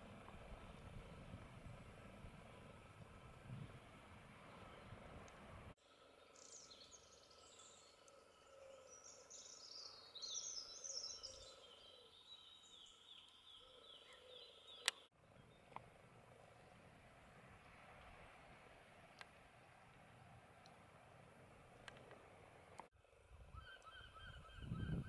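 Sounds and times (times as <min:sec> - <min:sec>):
faint outdoor background noise: 0:00.0 - 0:25.0
songbirds twittering: 0:05.9 - 0:17.4, 0:23.5 - 0:25.0.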